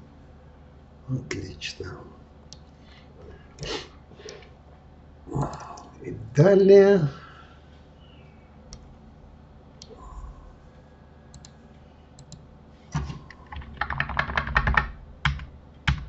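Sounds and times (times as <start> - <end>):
keyboard keystrokes: 13.0 - 16.0.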